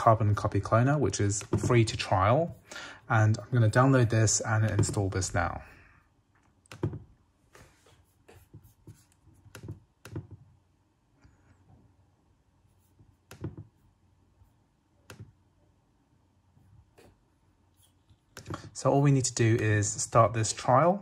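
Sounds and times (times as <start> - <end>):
laptop keys and trackpad clicking: 6.6 - 7.1, 9.0 - 10.4, 13.2 - 13.7.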